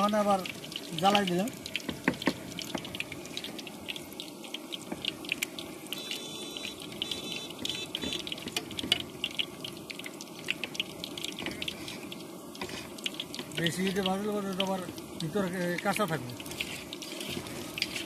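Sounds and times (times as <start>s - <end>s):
frying in sizzling oil: 0.0s - 18.0s
short high-pitched beeps: 6.0s - 8.2s.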